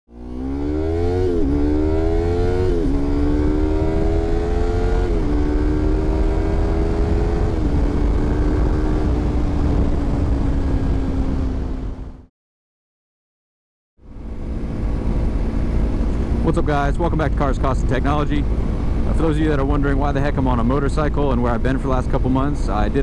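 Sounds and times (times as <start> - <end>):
motorcycle engine accelerating: 0.1 - 12.3, 14.0 - 23.0
wind rumble on microphone: 0.8 - 12.2, 14.1 - 23.0.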